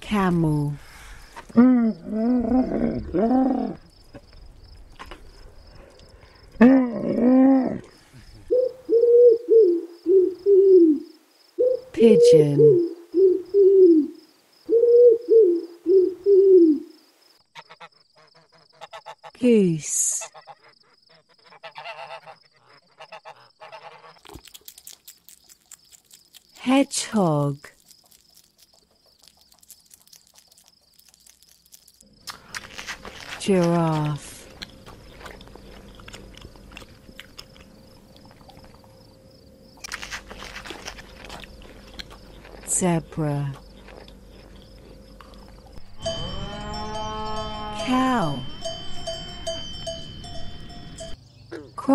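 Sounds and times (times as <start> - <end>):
pigeon cooing: 6.6 - 16.9
faint steady hum: 32.0 - 51.9.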